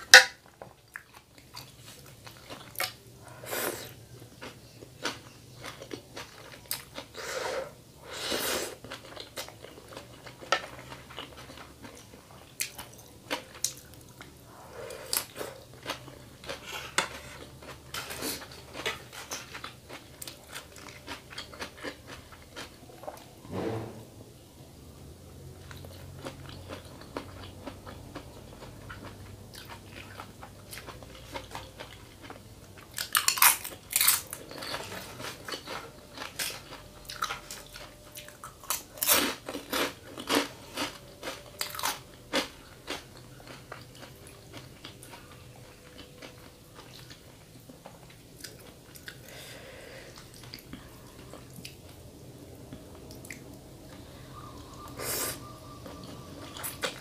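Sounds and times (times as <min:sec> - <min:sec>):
person chewing crunchy food: 0:00.8 - 0:23.3, 0:25.6 - 0:57.0.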